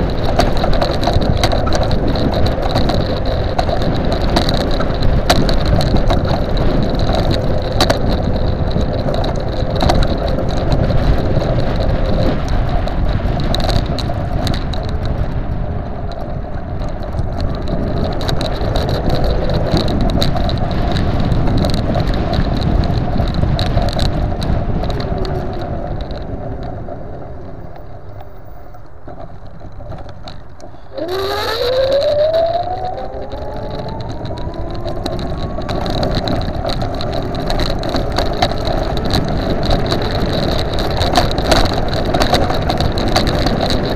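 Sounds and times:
tyre rumble: 0.0 - 43.9
wind on microphone: 0.0 - 43.9
electric motor whine: 30.9 - 36.5.

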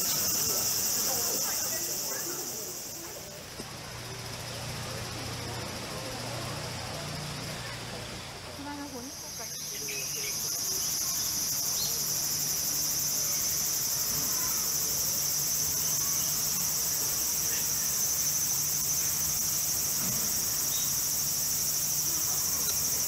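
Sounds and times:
chorus of insects: 0.0 - 23.0.

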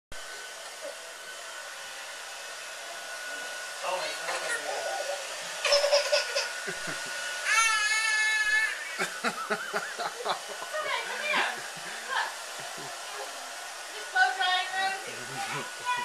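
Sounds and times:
toddler giggling and squealing: 4.3 - 10.3.

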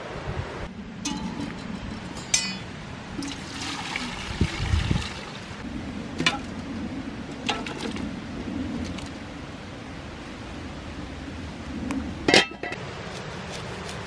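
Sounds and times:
broth pouring and splashing: 3.2 - 5.6, 7.4 - 8.1.

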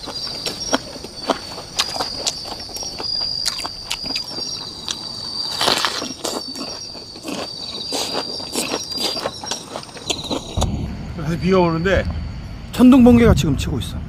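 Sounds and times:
person chewing crunchy food: 0.0 - 10.6
crickets trilling: 0.0 - 14.0.

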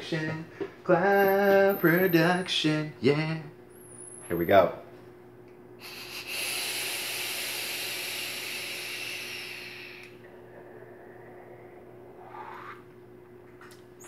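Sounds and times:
vape hissing: 5.8 - 12.9.

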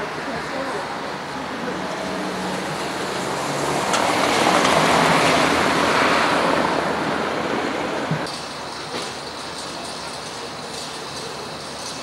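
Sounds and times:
vehicle passing close by: 1.7 - 8.2.

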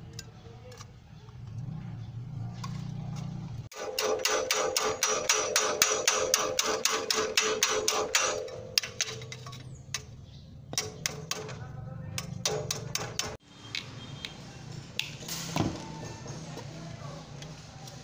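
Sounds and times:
hammer tapping on sheet metal: 3.9 - 9.2, 12.2 - 13.4.

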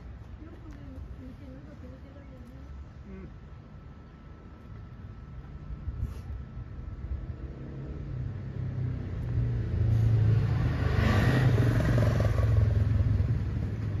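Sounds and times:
vehicle engine rumble passing: 4.3 - 14.0.

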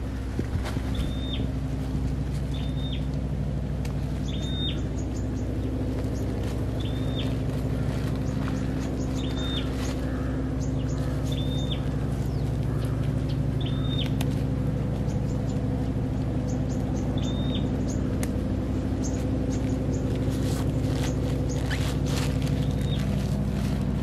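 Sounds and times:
low machine hum: 0.0 - 24.0
bird whistled call: 0.9 - 1.5, 2.5 - 3.1, 4.2 - 5.0, 6.8 - 7.4, 9.0 - 9.8, 13.6 - 14.2, 16.7 - 18.0
soil scraping and crumbling: 20.0 - 24.0.

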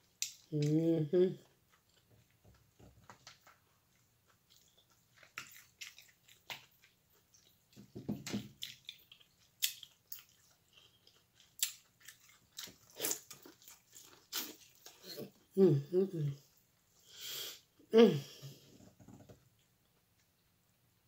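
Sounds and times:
wet chewing: 1.4 - 7.9, 8.5 - 15.4.

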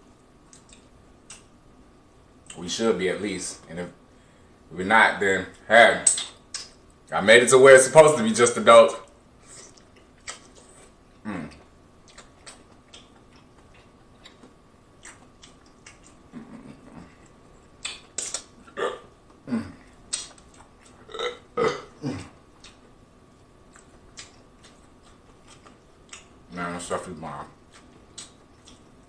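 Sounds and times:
wet mouth eating sounds: 9.4 - 23.0, 23.7 - 26.4, 27.6 - 29.0.

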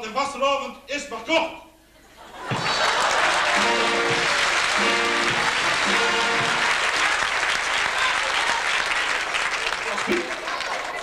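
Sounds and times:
audience applauding: 2.4 - 11.0
music with held notes: 3.5 - 6.7.

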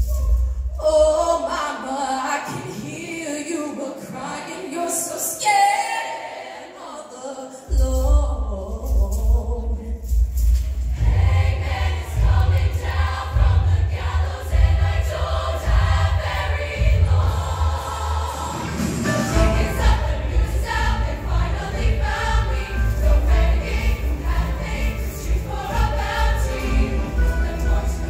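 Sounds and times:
choir singing in harmony: 1.0 - 7.8, 10.8 - 28.0
live band playing: 18.5 - 28.0.

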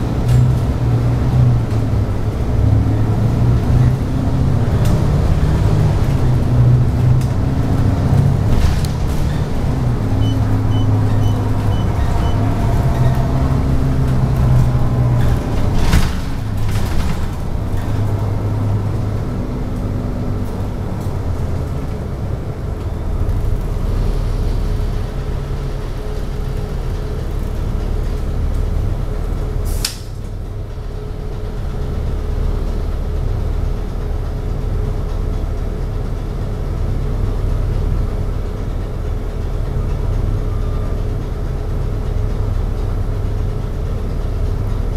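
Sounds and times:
bus engine humming: 0.0 - 44.9
air brake hiss: 29.6 - 30.2.

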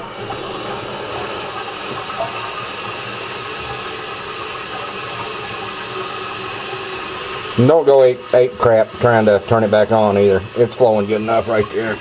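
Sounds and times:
water hissing through toilet valve: 0.0 - 12.0.

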